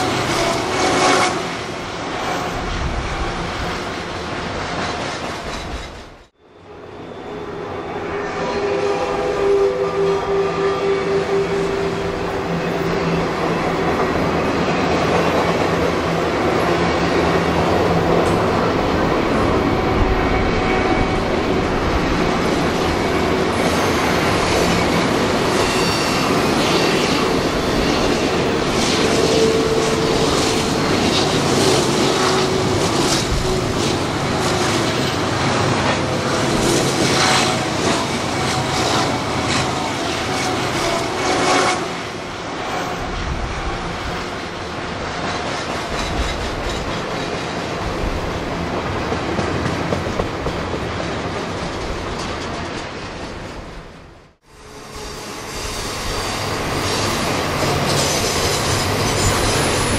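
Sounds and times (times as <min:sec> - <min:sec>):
railroad cars clacking on track: 0:00.0 - 0:59.9
steel wheels squealing: 0:22.8 - 0:28.1, 0:54.6 - 0:59.9.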